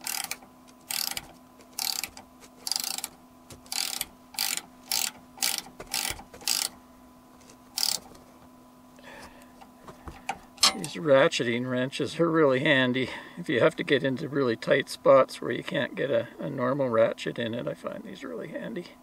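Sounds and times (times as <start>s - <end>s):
ratchet wrench clicking: 0.0s - 6.8s, 7.8s - 8.1s.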